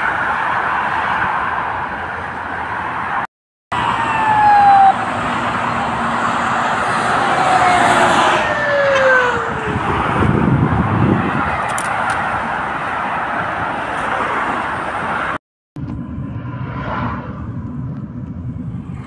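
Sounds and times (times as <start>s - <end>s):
traffic noise: 0.0s - 19.0s
police siren: 3.7s - 14.3s.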